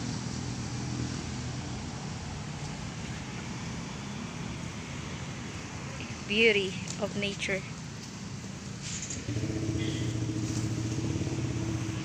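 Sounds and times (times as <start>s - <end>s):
distant road traffic rumble: 0.0s - 12.0s.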